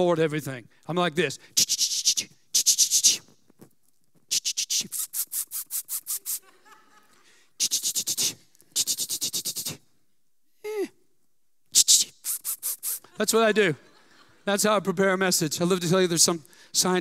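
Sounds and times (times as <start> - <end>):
man making hissing mouth sounds: 1.4 - 6.5, 7.6 - 10.0, 10.6 - 11.0, 11.7 - 13.2.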